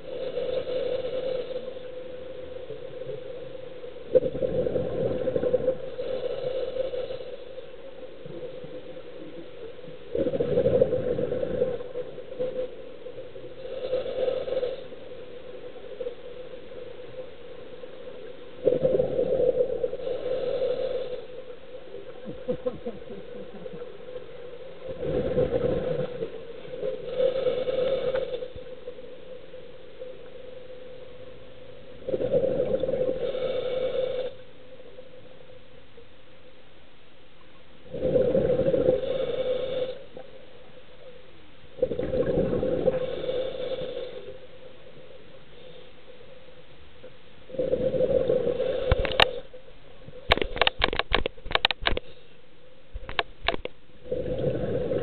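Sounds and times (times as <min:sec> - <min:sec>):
faint steady hum: 0:00.0 - 0:55.0
exhaled bubbles gurgling: 0:02.7 - 0:07.3, 0:08.2 - 0:15.0, 0:18.6 - 0:21.2, 0:21.8 - 0:28.6, 0:31.7 - 0:34.4, 0:37.8 - 0:40.4, 0:41.8 - 0:44.5, 0:47.5 - 0:49.5, 0:53.0 - 0:55.0.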